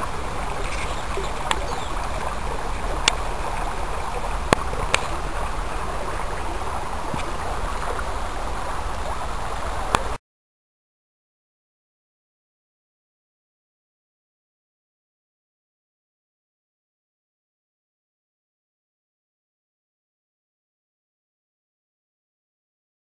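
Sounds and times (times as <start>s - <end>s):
water rushing in stream: 0.0s - 10.2s.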